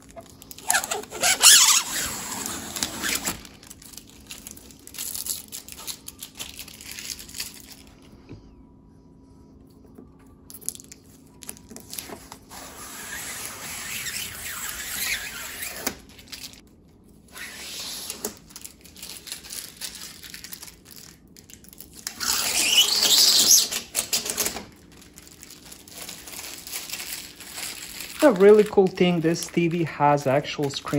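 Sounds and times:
plastic film peeling off: 0.0 - 8.0, 17.4 - 29.8.

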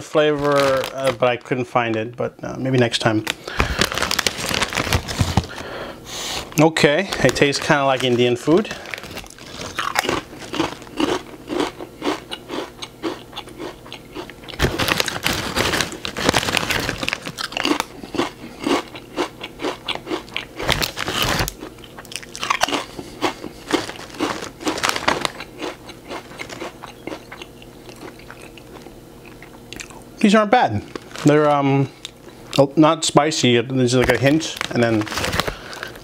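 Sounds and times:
chips crunching: 0.0 - 2.0, 2.7 - 5.7, 6.4 - 30.0, 30.8 - 32.7, 33.8 - 36.0
foil bag rustling: 0.0 - 2.0, 2.8 - 11.0, 14.6 - 17.8, 20.6 - 21.6, 23.5 - 25.5, 30.8 - 31.9, 33.4 - 36.0.

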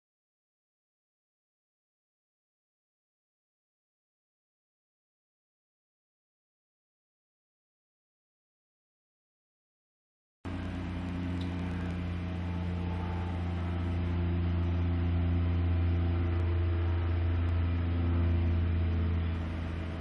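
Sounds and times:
aircraft engine and propeller droning: 10.5 - 20.0.

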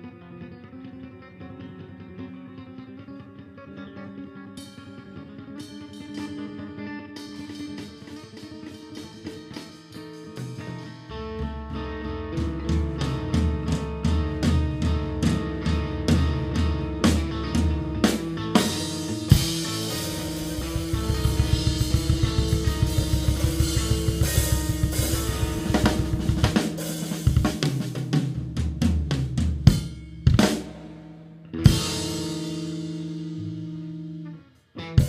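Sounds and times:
live rock band playing: 0.0 - 35.0
snare and bass drum strokes: 18.1 - 31.1
big accented drum hits: 19.2 - 27.8.

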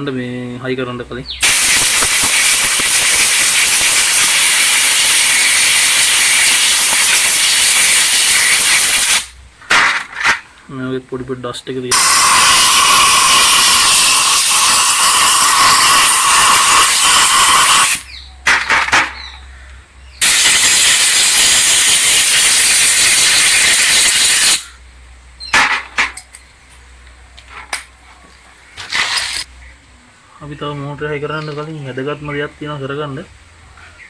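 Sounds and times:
compressed air blow gun hissing: 1.4 - 9.4, 11.9 - 18.1, 20.2 - 24.8
parts clicking and knocking: 9.6 - 10.6, 18.4 - 19.4, 25.5 - 28.0.

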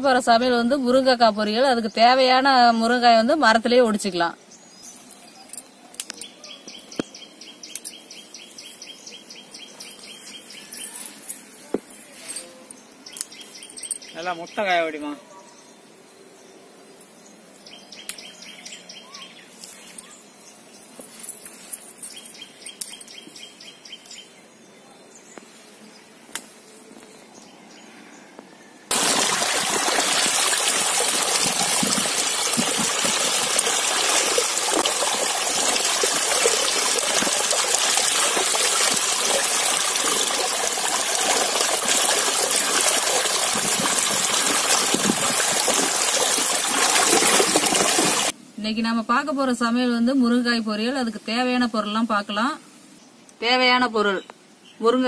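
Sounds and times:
birds chirping: 4.4 - 48.4
light rustles and snaps: 5.5 - 6.3
water gushing from pipe: 28.9 - 48.4.

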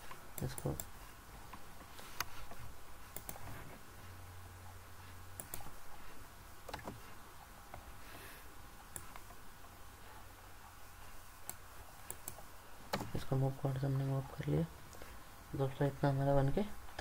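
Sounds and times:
computer mouse clicks: 0.0 - 0.9, 2.2 - 3.6, 5.4 - 5.8, 6.6 - 7.0, 8.9 - 9.4, 11.4 - 13.2
faint low hum: 0.0 - 17.0.

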